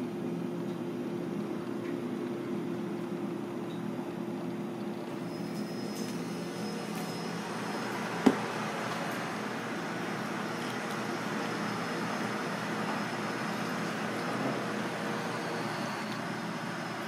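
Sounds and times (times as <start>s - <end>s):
kitchen machinery humming: 4.9s - 17.0s.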